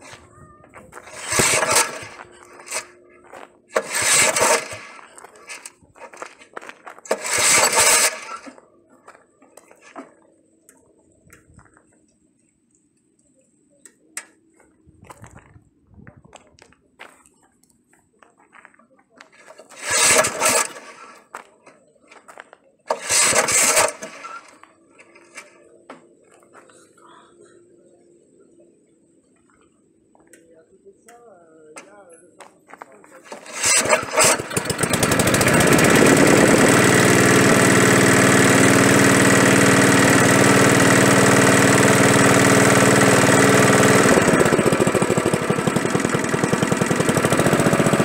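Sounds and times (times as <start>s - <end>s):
scraping: 0.0s - 8.6s, 32.7s - 38.5s
engine pull starter rasping: 0.9s - 3.0s, 3.7s - 6.3s, 7.0s - 8.6s, 19.4s - 21.3s, 22.9s - 25.7s, 33.2s - 48.0s.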